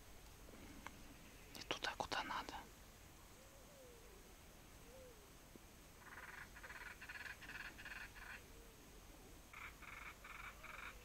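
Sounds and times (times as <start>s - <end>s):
frog croaking: 6.0s - 8.4s, 9.5s - 11.0s.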